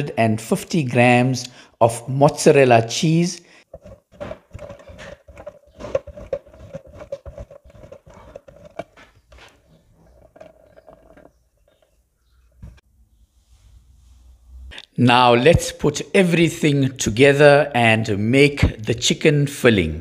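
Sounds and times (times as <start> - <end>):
cheese grated on box grater: 3.7 - 9.5.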